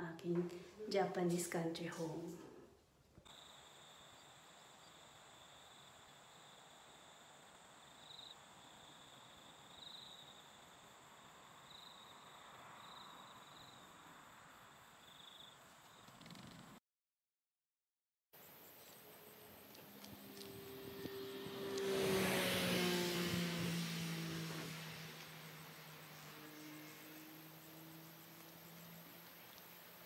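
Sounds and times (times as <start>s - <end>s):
insects trilling: 3.3s - 16.1s, 24.4s - 30.0s.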